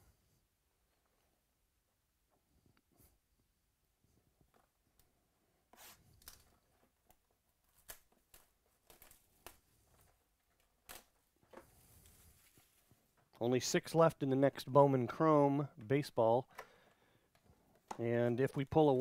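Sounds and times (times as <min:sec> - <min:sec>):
shrink-wrap crinkling and tearing: 0:07.6 - 0:11.2.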